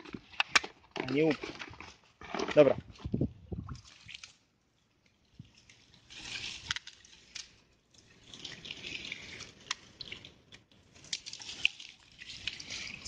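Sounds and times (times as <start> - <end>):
shallow water splashing: 5.2 - 13.0.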